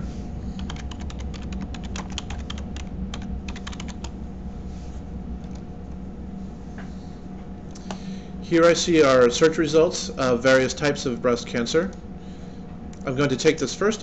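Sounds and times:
steady low hum: 0.0 - 14.0
typing on keyboard: 0.6 - 4.1.

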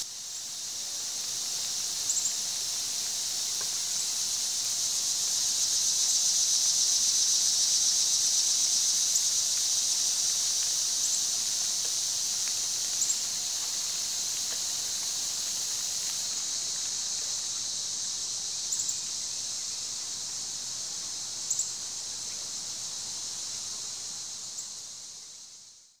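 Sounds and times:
sprinkler spray hissing: 0.0 - 22.0
faint ticks: 9.2 - 17.3.

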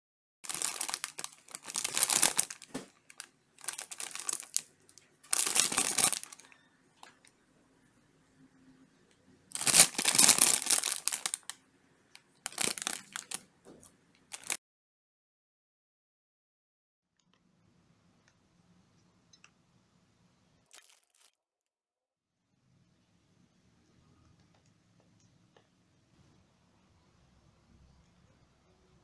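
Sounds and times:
plastic bag crinkling: 0.4 - 7.3, 9.5 - 11.6, 12.2 - 13.5, 14.3 - 14.6, 20.7 - 21.4.

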